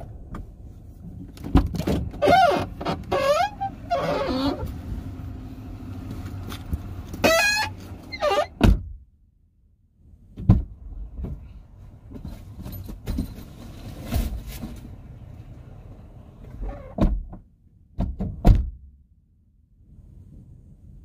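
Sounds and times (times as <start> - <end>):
engine and road noise rumble: 0.0 - 21.0
knocks and thumps: 10.4 - 11.5, 18.0 - 18.8.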